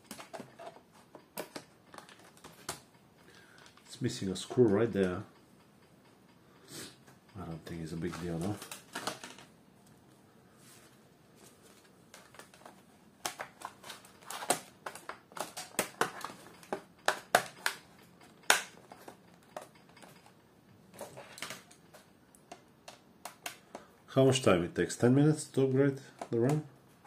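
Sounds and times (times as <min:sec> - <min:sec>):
plastic cover clicking into clips: 0:00.1 - 0:02.8, 0:08.1 - 0:09.5, 0:12.1 - 0:17.8.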